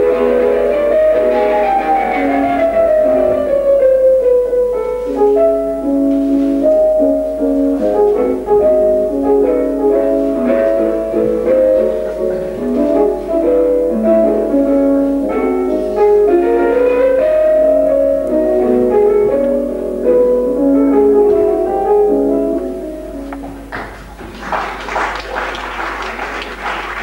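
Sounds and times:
piano instrumental music: 0.0 - 27.0.

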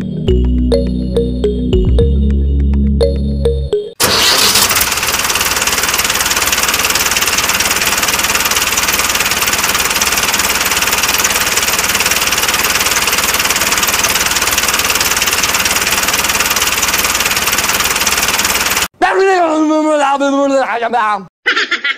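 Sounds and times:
tractor engine chugging: 4.0 - 18.9.

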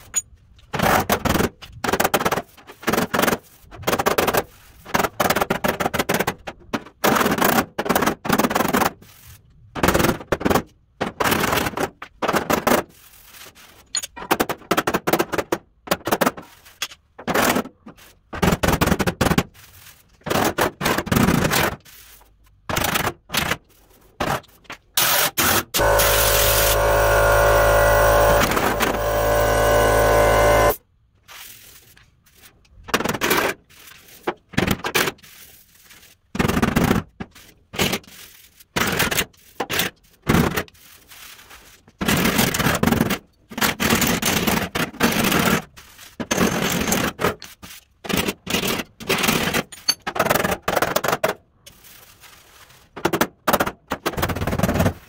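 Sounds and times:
steady drone: 25.8 - 30.8.

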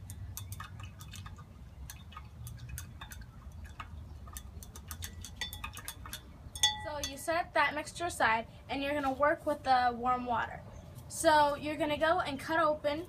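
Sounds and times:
chopstick ticking against glass: 0.0 - 7.2.

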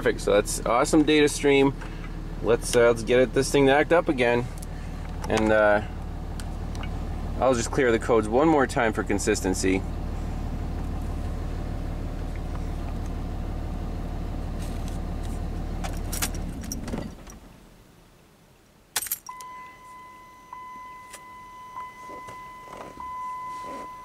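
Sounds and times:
diesel engine idling: 0.0 - 16.8
keys jingling: 19.0 - 19.4
steady electronic beep tone: 19.3 - 24.0.

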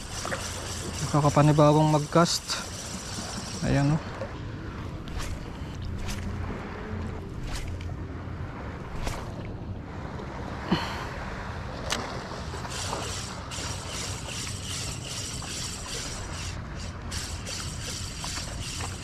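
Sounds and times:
fishing reel ticking whirr: 0.0 - 4.3, 5.0 - 6.3, 12.6 - 19.0
water rumble: 0.0 - 19.0.

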